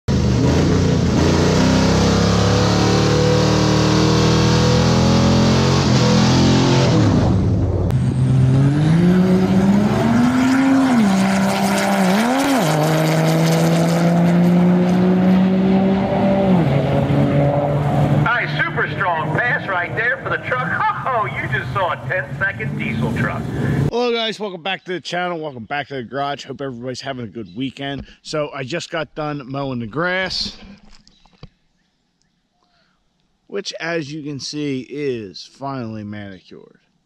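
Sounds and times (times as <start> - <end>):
diesel truck engine at full throttle: 0.1 - 23.9.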